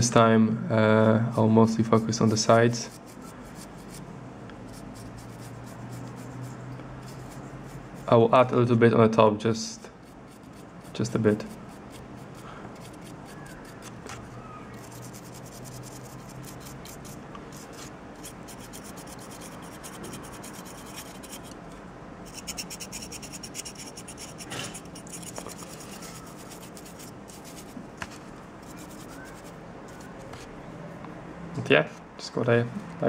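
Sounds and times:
paintbrush bristles scratching plastic: 1.7 - 4.1, 4.7 - 8.2, 10.0 - 21.6, 22.3 - 30.5.

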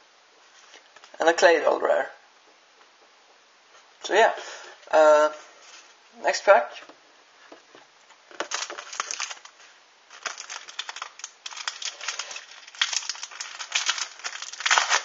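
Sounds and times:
foil wrapper crinkling and tearing: 8.4 - 15.0.

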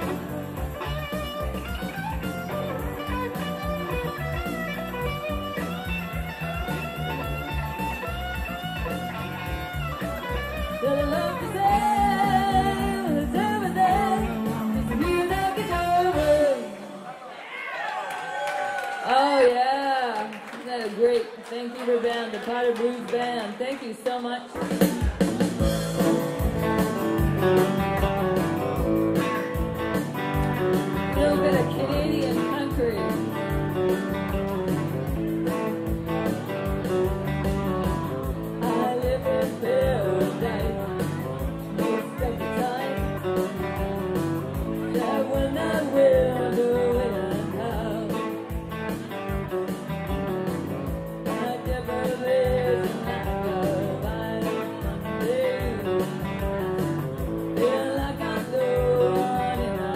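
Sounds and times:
electric guitars playing: 0.0 - 17.1, 24.6 - 59.9
woman singing: 10.8 - 17.0, 19.0 - 24.7, 30.9 - 33.6, 38.6 - 48.6, 51.3 - 56.8, 57.5 - 59.9.

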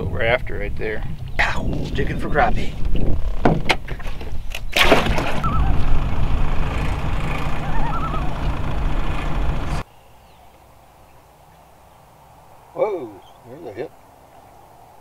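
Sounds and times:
wind buffeting microphone: 0.0 - 9.8
microphone handling knocks: 2.8 - 4.3
faint warbling bird call: 5.4 - 6.0, 6.8 - 8.6.

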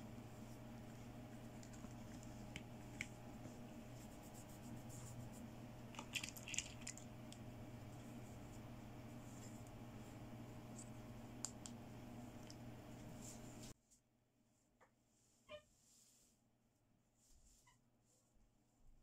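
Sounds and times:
steady low hum: 0.0 - 13.8.

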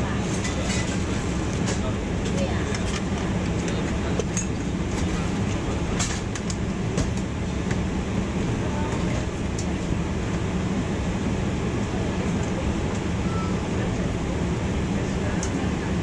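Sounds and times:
jet engines rumbling: 0.0 - 16.0.

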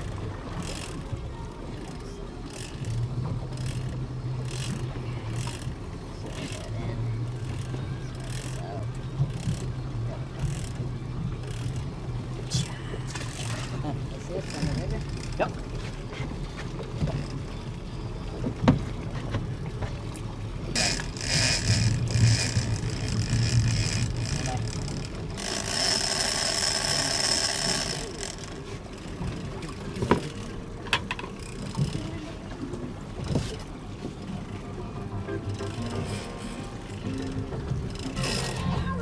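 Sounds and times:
boat engine rumble: 0.0 - 39.0
sharp knocks on boat: 14.4 - 17.5, 18.4 - 26.0, 27.4 - 32.1, 33.1 - 34.2.

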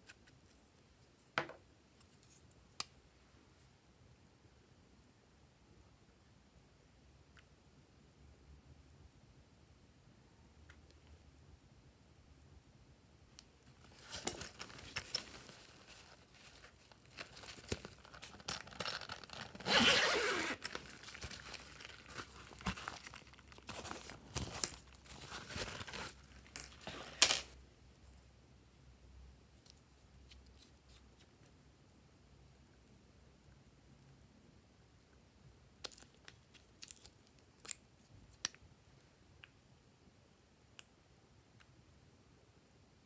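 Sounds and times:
zipper being pulled: 18.3 - 22.8.

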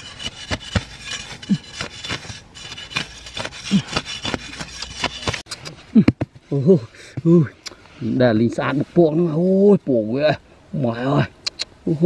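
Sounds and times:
blade scraping grass and soil: 0.0 - 5.5.

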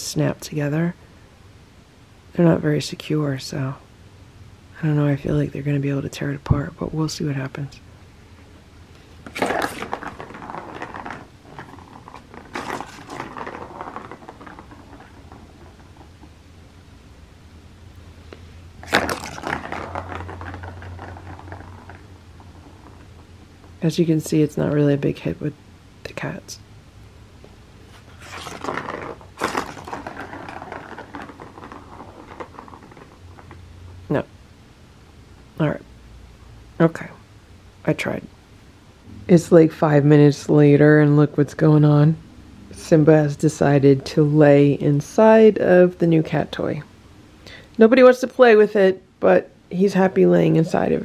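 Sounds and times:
plastic ball rattling around track: 9.2 - 16.4, 18.8 - 23.8, 28.0 - 33.6.

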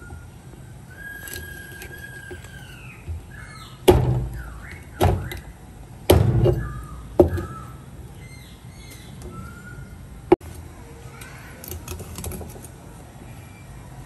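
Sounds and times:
birds chirping: 0.0 - 11.8
heavy ringing knocks: 3.8 - 5.5, 6.1 - 7.7.

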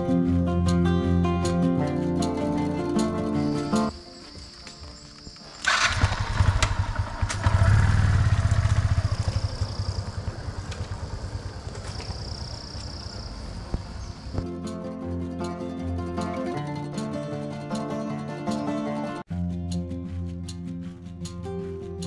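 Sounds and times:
motorcycle engine revving: 5.6 - 14.4.

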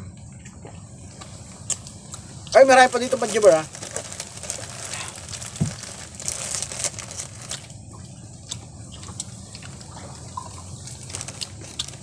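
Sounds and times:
plastic snack bag crinkling: 2.6 - 7.8, 10.6 - 12.0.

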